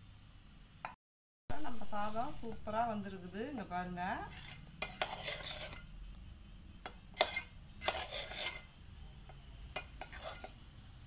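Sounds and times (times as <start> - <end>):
metal ladle scraping pot: 4.2 - 5.9, 6.8 - 8.7, 9.8 - 10.6.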